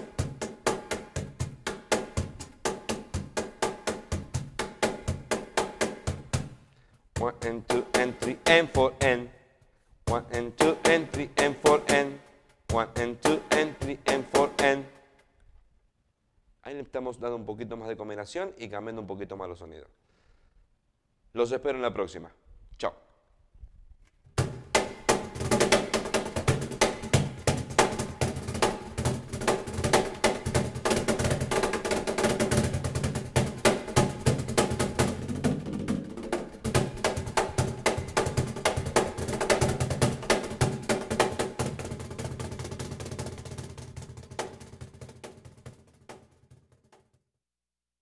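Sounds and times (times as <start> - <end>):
box drum slaps and bass strokes: 0.0 - 9.2, 10.0 - 14.8, 24.4 - 47.1.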